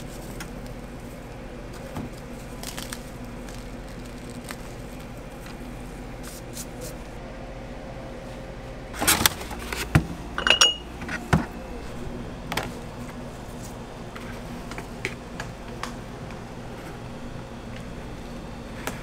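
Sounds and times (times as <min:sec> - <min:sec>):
plastic bags rustling: 0:00.0 - 0:07.1.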